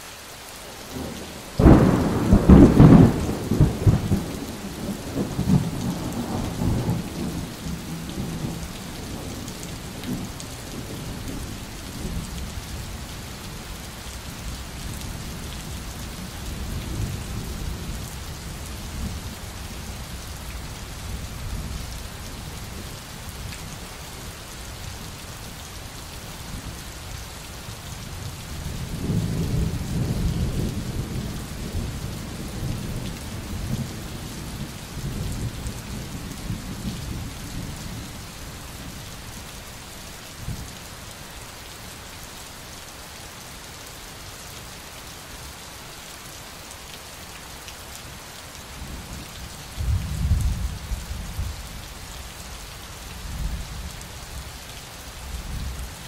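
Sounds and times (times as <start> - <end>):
steady rain hiss: 0.0 - 56.0
rolling thunder: 1.1 - 8.6.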